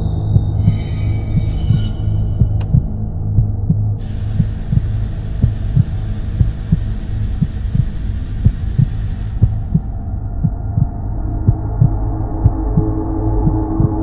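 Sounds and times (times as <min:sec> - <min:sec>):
deep hum: 0:00.0 - 0:14.0
heartbeat thuds: 0:02.4 - 0:14.0
hiss: 0:04.0 - 0:09.6.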